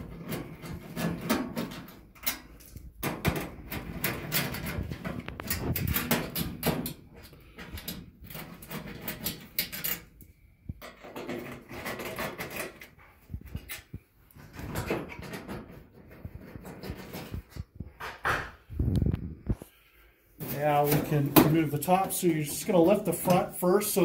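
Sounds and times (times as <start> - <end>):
metal clicks scrapes and knocks: 0.0 - 19.0.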